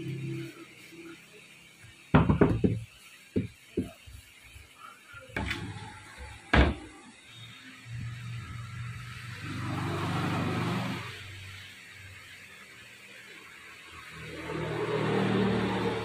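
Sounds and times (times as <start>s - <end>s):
metal block knocking on workbench: 2.2s - 3.9s.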